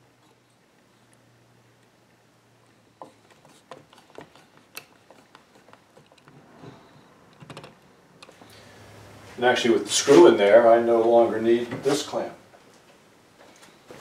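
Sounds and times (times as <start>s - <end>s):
hand tools clicking and knocking: 3.0s - 6.4s.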